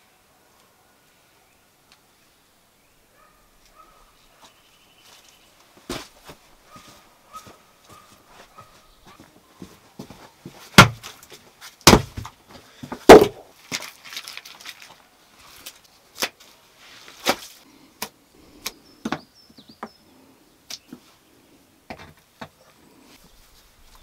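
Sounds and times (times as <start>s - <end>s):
heavy stone knocks: 10.8s - 11.0s, 11.9s - 12.3s, 12.9s - 13.4s.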